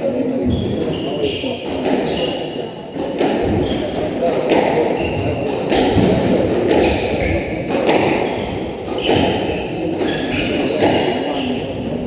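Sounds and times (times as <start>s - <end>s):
ball thudding against walls: 3.0s - 11.3s
squash ball cracking off rackets: 3.0s - 11.3s.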